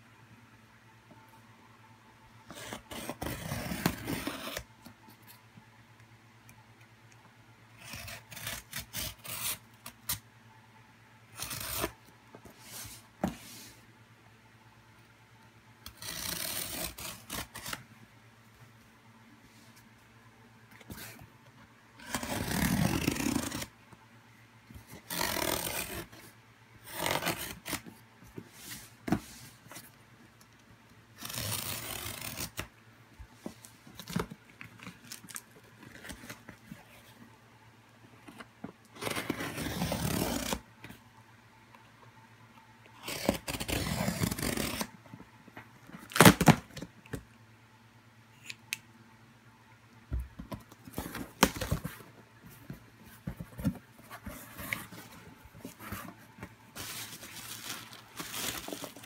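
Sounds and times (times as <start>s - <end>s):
packing tape ripping off cardboard: 22.0s - 23.7s, 25.0s - 26.2s, 31.2s - 32.7s, 39.0s - 40.6s, 43.0s - 44.9s, 46.0s - 46.8s.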